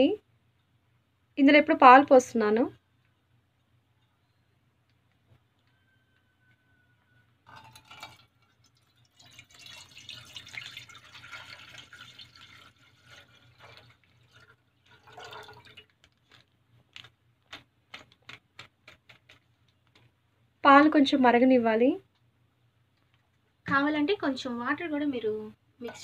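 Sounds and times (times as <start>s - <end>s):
milk pouring into metal pot: 7.5s - 16.4s.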